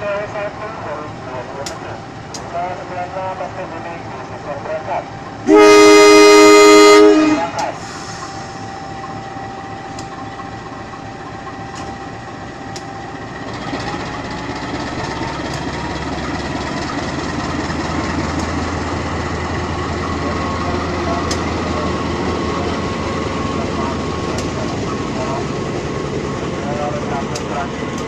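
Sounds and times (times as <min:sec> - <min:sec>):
locomotive engine running: 0:00.0 - 0:28.0
train rumble: 0:00.0 - 0:28.0.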